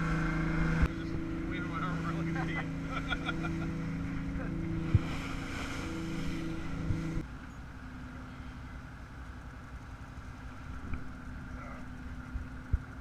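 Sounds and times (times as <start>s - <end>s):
boat engine running: 0.0s - 13.0s
wind and water noise: 0.0s - 13.0s.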